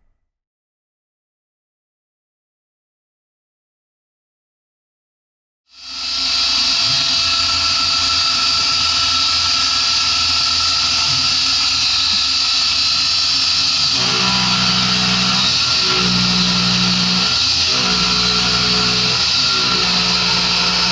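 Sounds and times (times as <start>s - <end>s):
milling machine cutting metal: 6.1s - 20.9s.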